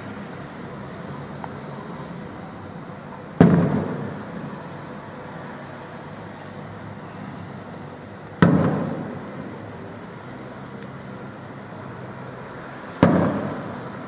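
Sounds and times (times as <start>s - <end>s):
firework shells bursting: 8.4s - 9.4s, 13.0s - 13.8s.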